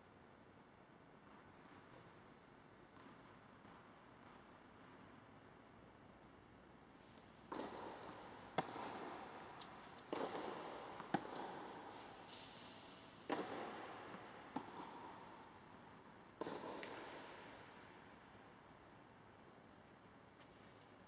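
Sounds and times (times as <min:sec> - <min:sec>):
tennis balls hit and bouncing: 0:07.4 - 0:18.3.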